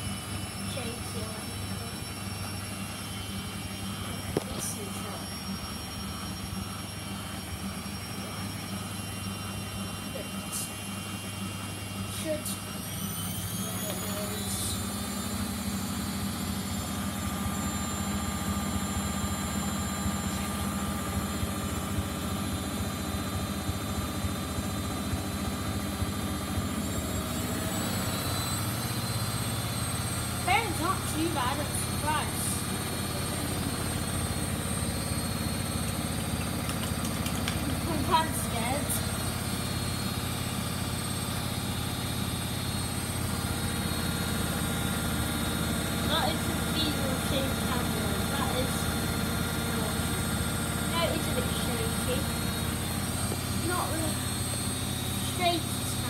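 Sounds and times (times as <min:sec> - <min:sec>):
high motor whine: 0:00.0 - 0:56.0
washing machine spinning: 0:00.0 - 0:56.0.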